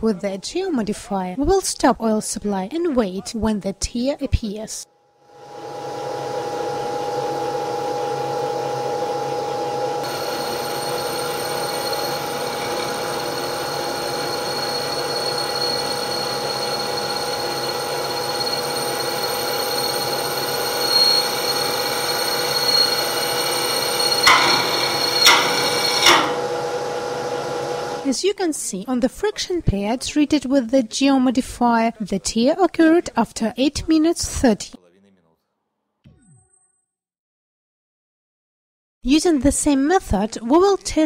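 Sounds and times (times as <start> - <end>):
steady mechanical whine: 5.4 - 28.1.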